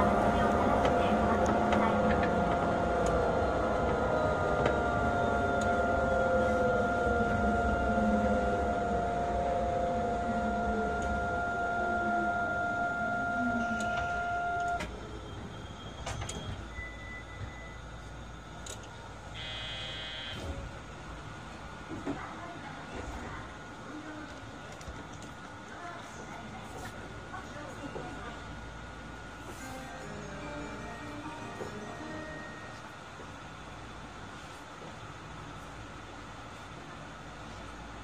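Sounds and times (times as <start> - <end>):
steady electrical tone: 0.0 - 14.8, 19.3 - 20.4
train motor whine: 0.0 - 17.8, 19.3 - 20.8
brief high electronic tone: 19.4 - 20.5.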